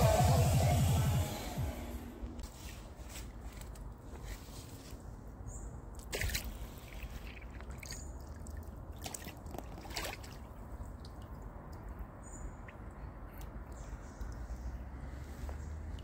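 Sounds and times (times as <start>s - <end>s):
low steady rumble: 0.0s - 2.5s
water dripping and lapping: 5.9s - 16.0s
small water splashes: 6.0s - 14.9s.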